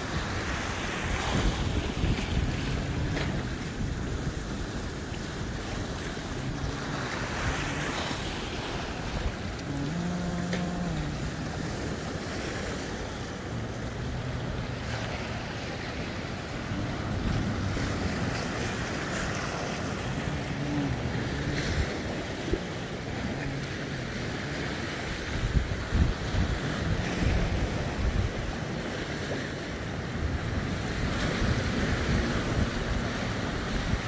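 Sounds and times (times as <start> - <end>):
waves breaking over rocks: 0.0 - 34.0
wind buffeting microphone: 0.0 - 34.0.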